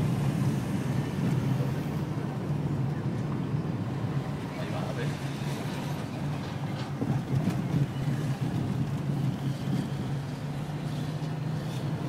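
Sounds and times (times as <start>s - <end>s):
car engine and tyres drone: 7.1s - 12.0s.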